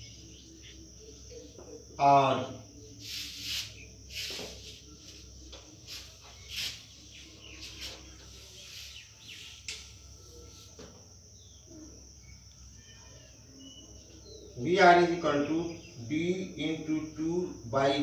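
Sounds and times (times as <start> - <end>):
faint bird chirps: 0.0 - 18.0
marker scratching on whiteboard: 3.0 - 5.2.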